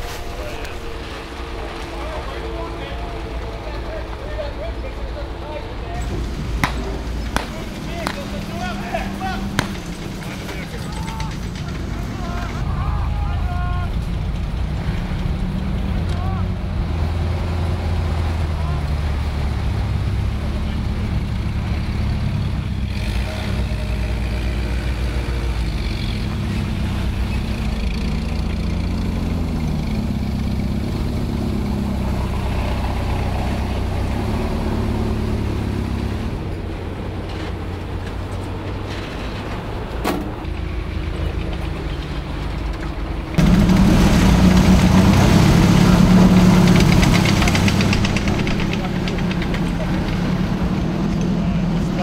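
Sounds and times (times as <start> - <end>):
armored vehicle engines running: 0.0 - 52.0
sharp knock: 9.4 - 10.2.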